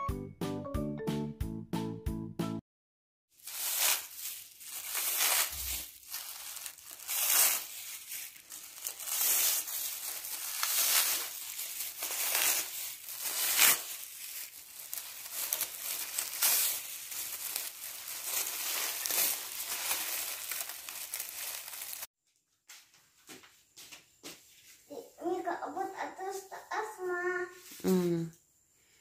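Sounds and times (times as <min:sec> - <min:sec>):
plastic sleeves crinkling: 0:03.4 - 0:22.1.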